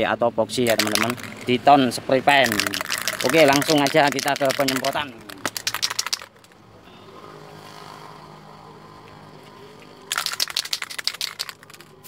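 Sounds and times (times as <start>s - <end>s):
spray can ball rattling: 0.6s - 1.7s, 2.4s - 6.6s, 10.1s - 12.0s.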